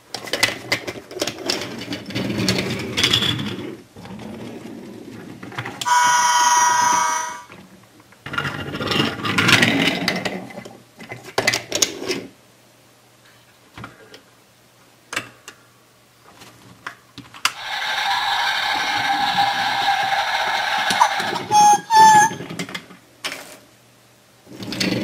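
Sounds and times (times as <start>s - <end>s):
wooden toy trains scraping and knocking: 0.2s - 7.5s, 17.6s - 23.6s, 24.5s - 25.0s
toy crossing gates clicking: 17.6s - 22.5s
wooden train rolling on track: 17.6s - 22.9s.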